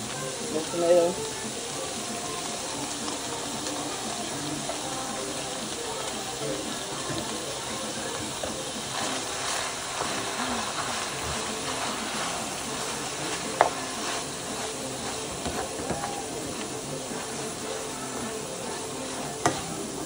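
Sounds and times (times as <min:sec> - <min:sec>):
meat sizzling in a frying pan: 0:00.0 - 0:20.0
utensil stirring and scraping: 0:00.1 - 0:20.0
utensil knocking against pan: 0:13.2 - 0:17.5.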